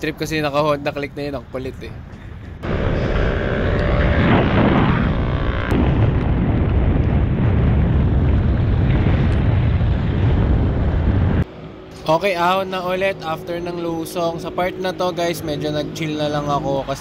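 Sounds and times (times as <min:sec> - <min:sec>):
wind buffeting microphone: 0:00.0 - 0:11.9
falling whine: 0:02.6 - 0:16.1.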